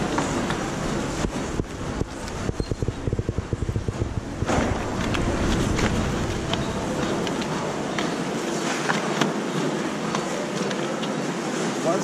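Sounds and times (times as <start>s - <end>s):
steady rushing background noise: 0.0s - 12.0s.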